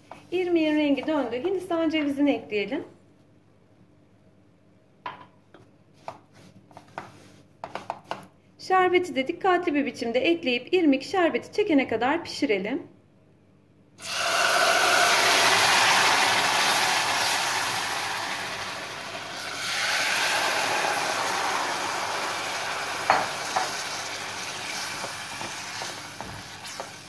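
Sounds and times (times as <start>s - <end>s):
syrup sizzling in hot pan: 14.0s - 27.0s.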